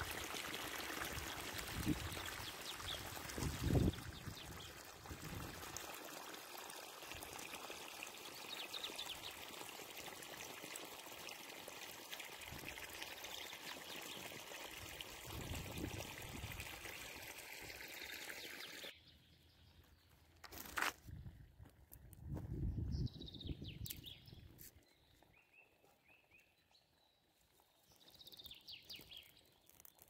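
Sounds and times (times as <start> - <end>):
stream water trickling over stones: 0.0 - 19.0, 23.5 - 24.6, 26.7 - 30.0.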